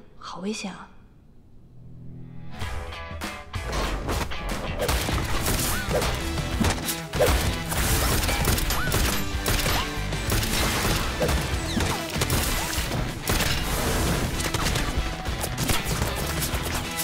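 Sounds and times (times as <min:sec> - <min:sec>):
dramatic action music: 0:02.1 - 0:17.0
gunfire: 0:07.1 - 0:16.9.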